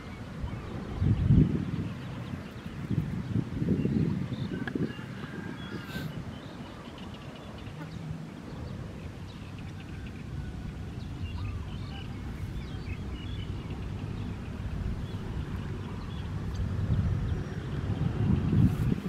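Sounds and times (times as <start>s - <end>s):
faint bird chirps: 3.8s - 16.6s
low steady rumble: 7.5s - 19.0s.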